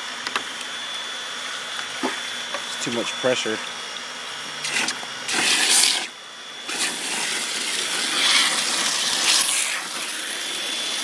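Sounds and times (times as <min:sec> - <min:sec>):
water pump running: 0:01.3 - 0:11.0
hose water splashing into bucket: 0:04.6 - 0:06.1, 0:06.7 - 0:11.0.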